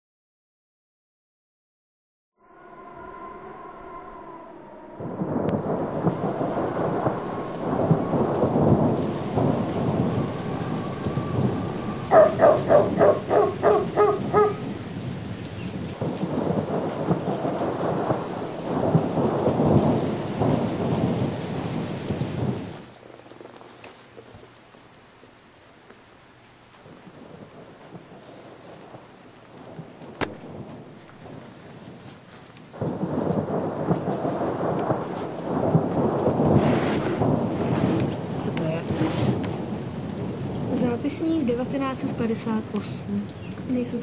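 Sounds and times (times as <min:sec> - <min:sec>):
pulsed tones: 0:02.4 - 0:14.3.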